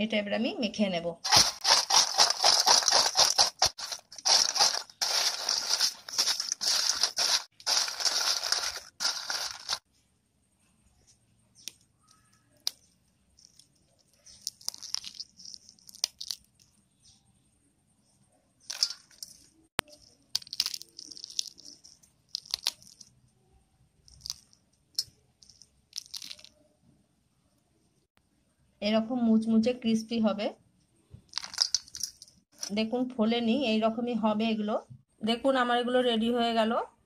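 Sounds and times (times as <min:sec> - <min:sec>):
chips rustling in steel bowl: 0:01.3 - 0:09.8, 0:14.2 - 0:16.4, 0:18.7 - 0:23.1, 0:24.1 - 0:26.5, 0:31.3 - 0:32.8.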